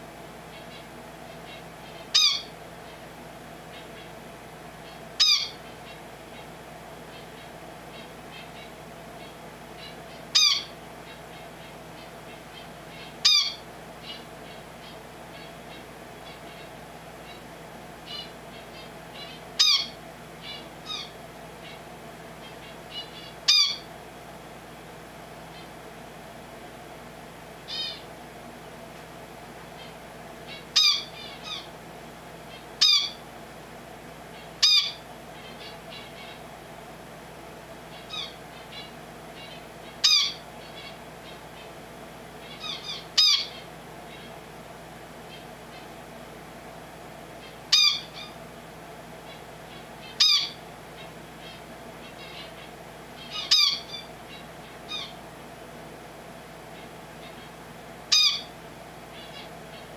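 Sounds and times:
finch calling: 0.5s - 3.0s, 4.8s - 6.5s, 7.1s - 23.9s, 27.7s - 28.1s, 29.8s - 31.7s, 32.5s - 33.2s, 34.4s - 36.5s, 37.9s - 41.8s, 42.4s - 44.4s, 47.4s - 48.4s, 49.3s - 55.2s, 56.7s - 59.9s
soft finch chirps: 0.5s - 3.0s, 3.7s - 23.9s, 27.6s - 28.1s, 29.7s - 31.7s, 32.4s - 33.2s, 34.3s - 36.5s, 37.8s - 41.8s, 42.4s - 44.4s, 47.3s - 48.4s, 49.2s - 55.2s, 56.7s - 59.9s.

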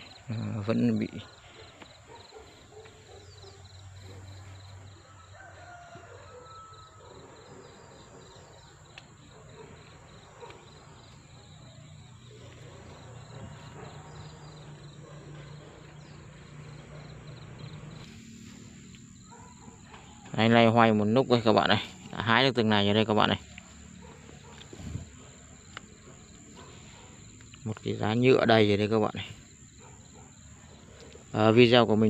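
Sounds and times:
faint garden ambience: 0.0s - 32.0s
insect chirping: 0.0s - 32.0s.

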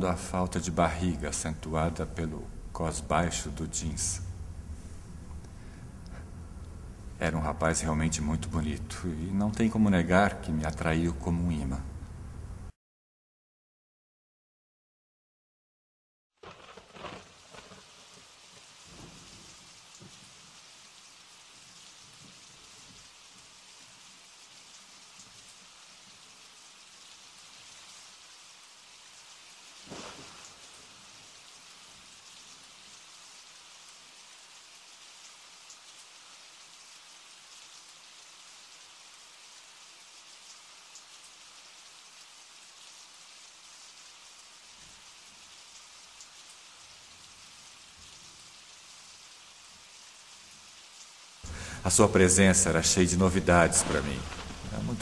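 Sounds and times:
steady rain hiss: 0.0s - 12.8s, 16.4s - 55.0s
sudden thump: 53.6s - 55.0s.

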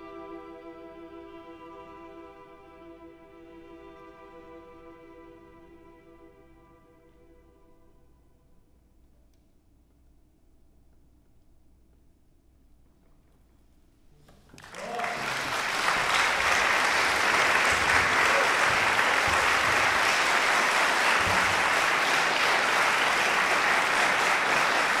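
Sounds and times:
audience applause: 14.5s - 25.0s.

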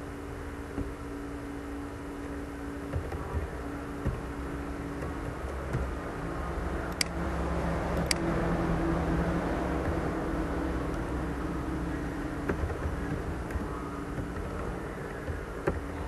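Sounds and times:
low hum and hiss: 0.0s - 16.0s
sharp clicks: 6.9s - 7.2s, 7.9s - 8.3s.

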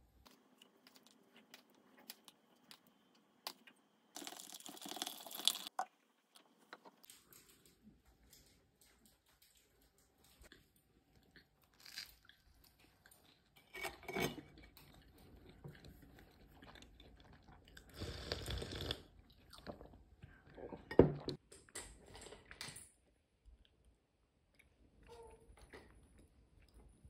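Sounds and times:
person chewing and crunching food: 0.0s - 13.8s, 14.4s - 20.9s.

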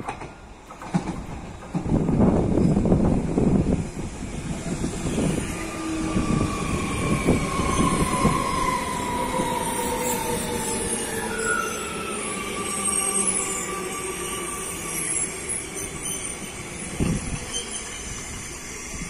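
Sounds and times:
train rolling rumble: 0.0s - 19.0s
train wheels squealing: 4.3s - 19.0s.

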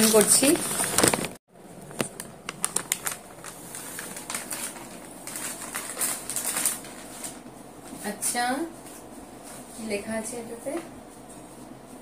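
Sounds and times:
paper envelope rustling: 0.0s - 7.4s.

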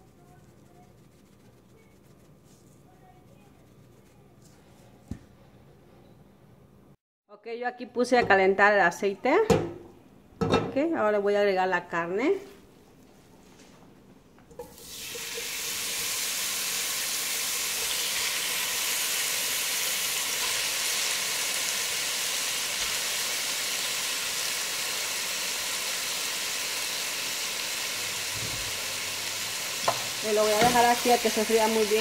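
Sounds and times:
meat sizzling in hot oil: 14.6s - 32.0s.

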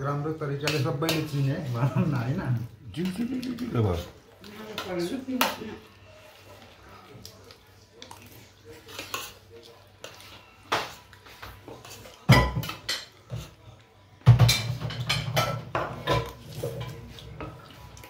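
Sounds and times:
spoon scraping a plate: 8.8s - 13.5s
dishes and cutlery clattering: 10.1s - 13.6s, 14.2s - 17.6s.

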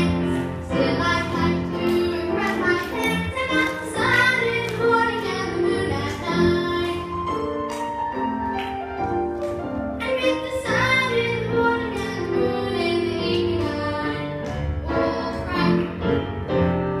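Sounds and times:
girl singing into a microphone: 0.0s - 7.2s
accompanying music: 0.0s - 17.0s.

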